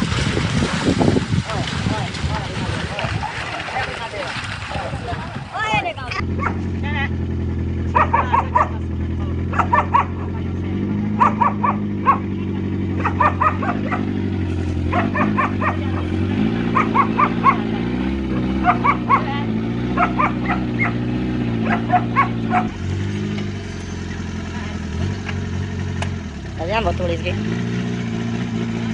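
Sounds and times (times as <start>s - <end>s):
car engine running: 5.6s - 28.9s
dog barking: 6.4s - 6.6s, 7.9s - 10.4s, 11.1s - 12.3s, 13.0s - 14.1s, 14.9s - 17.7s, 18.4s - 21.0s, 21.6s - 22.8s.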